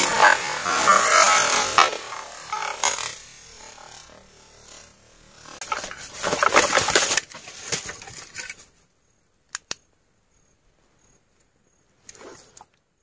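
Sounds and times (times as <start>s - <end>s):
dry leaves crackling and rustling: 5.6s - 8.6s
sharp clicks: 9.5s - 9.9s.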